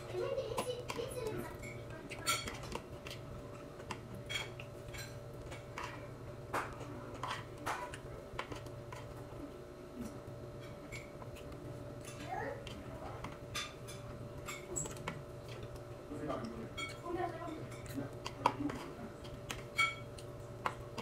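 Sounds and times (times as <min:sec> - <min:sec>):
steady low hum: 0:00.0 - 0:21.0
metal spoon clinking on bowl: 0:16.7 - 0:18.8, 0:19.5 - 0:20.2.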